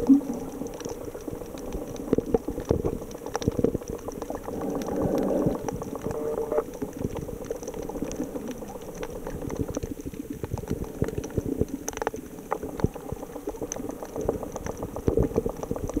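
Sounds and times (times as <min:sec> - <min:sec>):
low underwater rumble: 0:00.0 - 0:16.0
underwater crackling and bubbling: 0:00.0 - 0:16.0.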